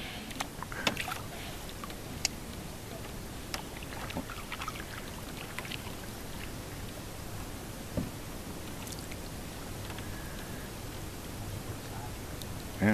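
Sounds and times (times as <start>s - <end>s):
paddle splashing in water: 0.6s - 1.9s, 3.0s - 6.9s.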